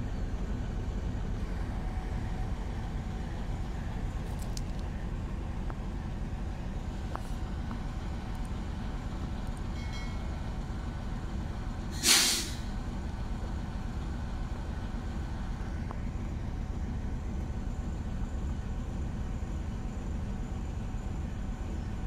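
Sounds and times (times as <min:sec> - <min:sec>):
steady low rumble: 0:00.0 - 0:11.9, 0:12.6 - 0:22.0
train air brakes hissing: 0:11.9 - 0:12.8.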